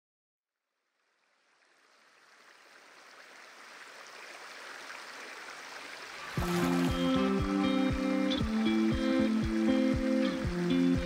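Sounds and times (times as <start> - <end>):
stream running over stones: 1.0 - 11.0.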